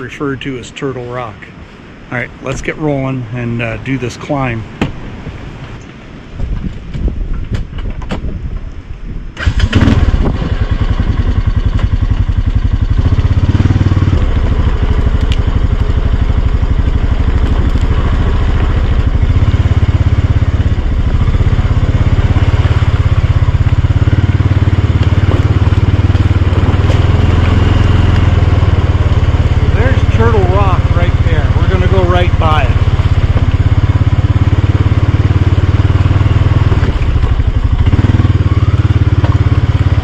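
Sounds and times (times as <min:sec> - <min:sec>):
atv engine revving: 0:09.4 - 0:40.0.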